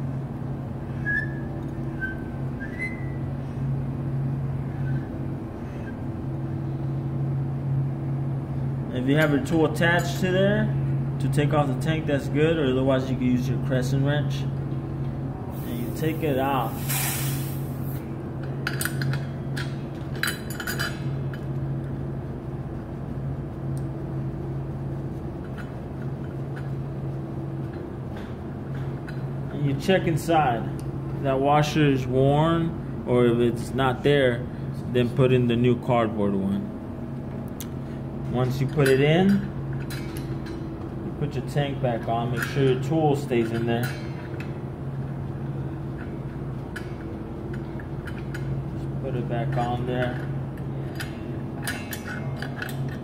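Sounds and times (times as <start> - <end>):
low mechanical hum: 0.0 - 53.0
faint high squeak: 0.9 - 3.2.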